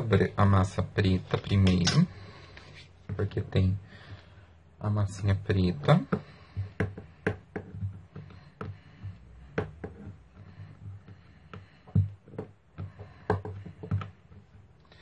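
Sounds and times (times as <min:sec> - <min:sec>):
taps of hands and roller on board: 0:05.8 - 0:14.5.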